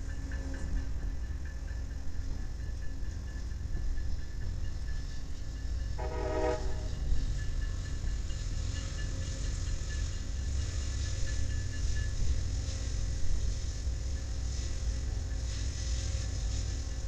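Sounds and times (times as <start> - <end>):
locomotive horn blast: 6.0 - 7.0.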